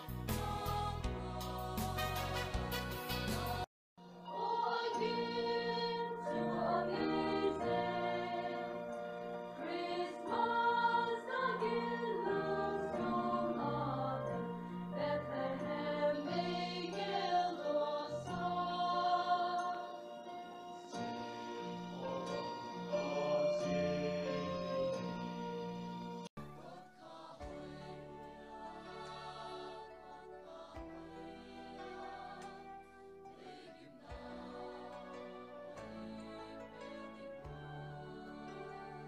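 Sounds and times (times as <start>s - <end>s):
choir singing in harmony: 0.0s - 39.0s.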